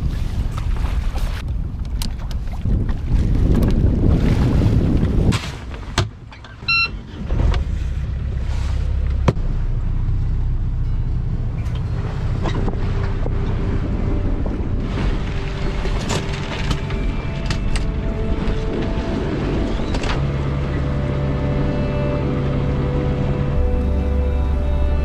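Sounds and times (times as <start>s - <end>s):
wind on microphone: 0.0s - 6.0s, 11.9s - 25.0s
boat engine running: 0.0s - 25.0s
short electronic beep: 6.7s - 7.0s.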